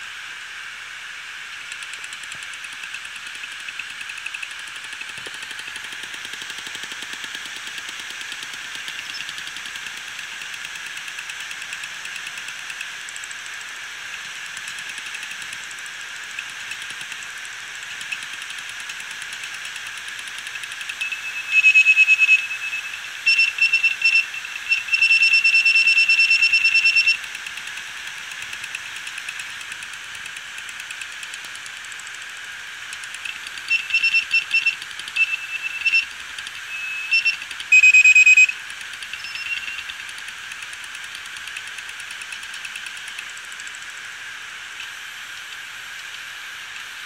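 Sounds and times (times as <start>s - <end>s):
hard drive platters hissing: 0.8s - 47.0s
high-pitched squealing tone: 21.0s - 25.4s, 33.7s - 38.5s.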